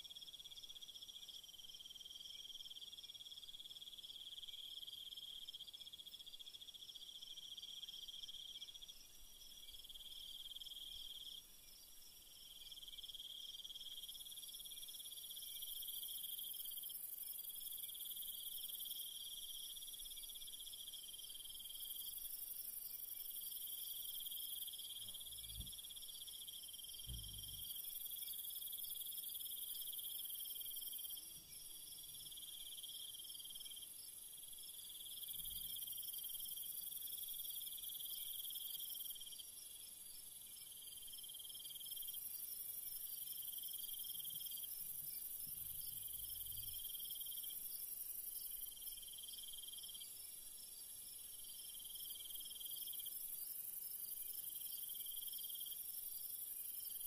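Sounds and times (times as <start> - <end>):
insects trilling: 12.4 - 50.4.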